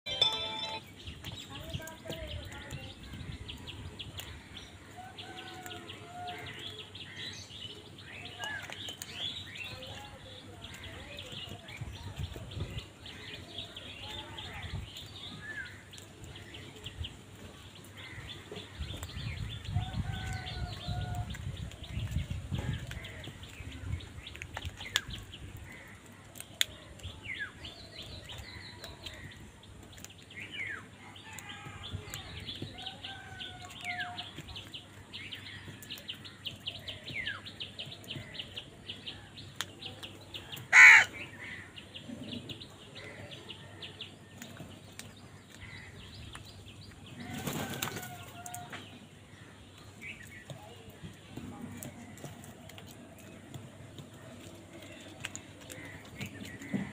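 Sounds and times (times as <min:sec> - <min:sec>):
crows and myna calling: 0:17.8 - 0:21.5, 0:24.7 - 0:27.1, 0:40.4 - 0:41.9, 0:45.4 - 0:46.3, 0:51.7 - 0:56.9
bird wingbeats: 0:47.2 - 0:48.3.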